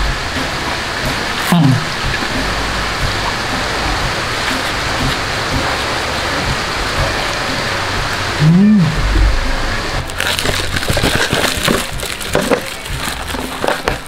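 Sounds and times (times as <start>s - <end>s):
steady rain falling: 0.0s - 14.0s
short low vocal hum: 1.4s - 10.1s.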